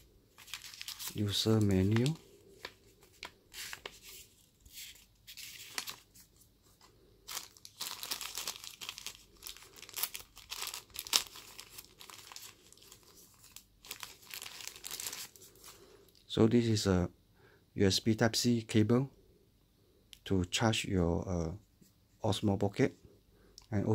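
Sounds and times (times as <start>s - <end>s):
plastic bag crinkling: 0.0s - 6.4s, 7.2s - 15.8s.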